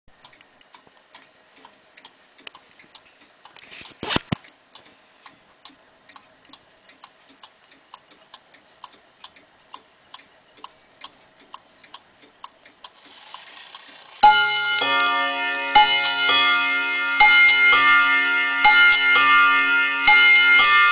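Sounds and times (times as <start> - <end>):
pendulum clock ticking: 4.7 - 20.9.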